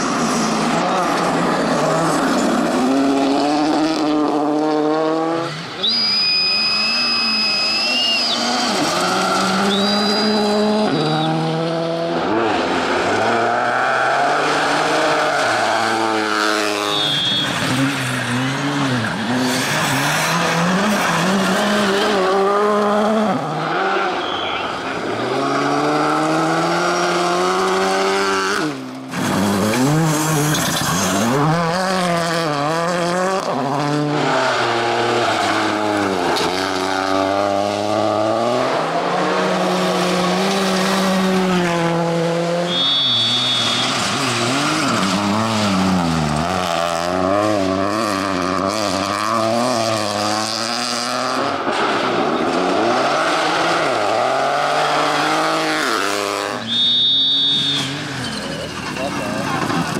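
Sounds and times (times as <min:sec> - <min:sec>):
rally car engines revving: 0:00.0 - 0:59.9
brief high whistle: 0:05.8 - 0:08.6, 0:09.6 - 0:11.4, 0:16.8 - 0:17.6, 0:24.2 - 0:24.7, 0:42.7 - 0:43.9, 0:56.6 - 0:58.6.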